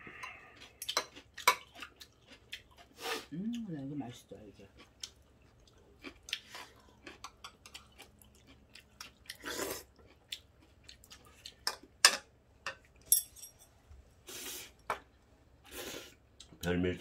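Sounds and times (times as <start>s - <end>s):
people chewing: 0.0s - 12.0s
light ringing clink: 13.1s - 13.7s.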